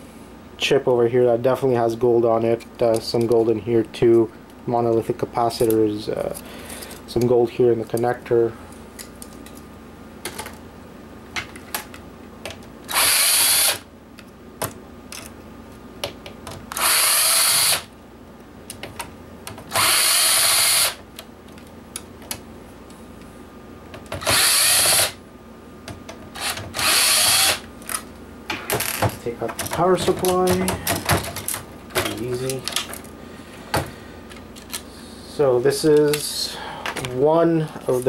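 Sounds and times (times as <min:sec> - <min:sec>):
power drill backing out screws: 0:24.2 - 0:25.1, 0:26.4 - 0:27.6
handling clicks and taps: 0:29.4 - 0:33.0.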